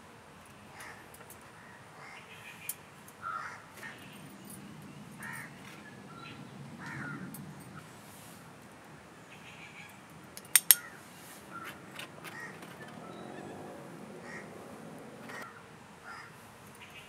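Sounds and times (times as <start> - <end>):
harsh caw-like bird calls: 0.7 - 8.0, 10.7 - 17.0.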